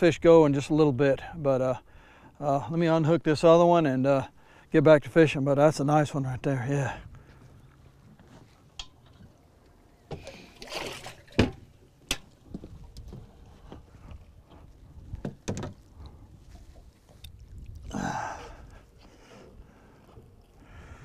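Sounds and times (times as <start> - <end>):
water sloshing: 8.5 - 17.9.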